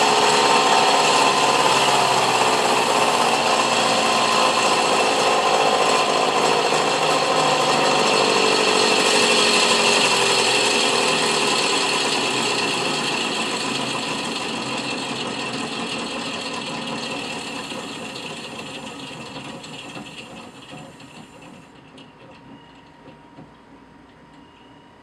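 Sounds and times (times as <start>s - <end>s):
electric motor whir: 0.0s - 15.8s.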